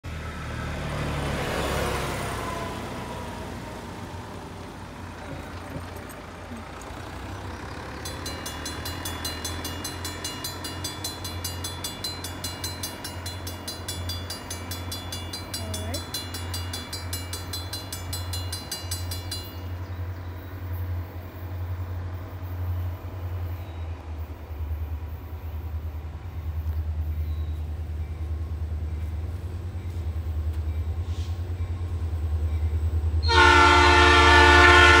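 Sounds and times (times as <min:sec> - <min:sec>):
diesel train rumble: 0:00.0 - 0:35.0
railroad crossing bell ringing: 0:06.0 - 0:25.4, 0:31.7 - 0:35.0.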